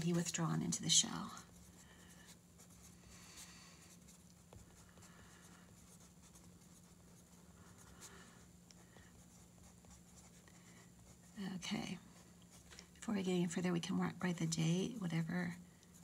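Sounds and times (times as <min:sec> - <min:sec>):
low steady hum: 0:00.0 - 0:16.0
pen scratching on paper: 0:03.9 - 0:08.2, 0:09.0 - 0:12.7.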